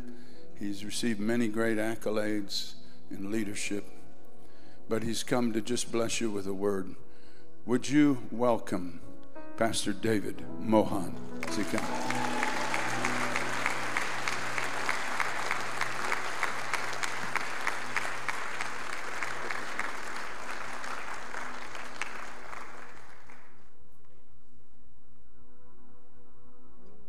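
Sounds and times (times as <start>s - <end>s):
soft background music: 0.0s - 21.2s, 23.8s - 27.0s
congregation applauding: 11.2s - 23.8s.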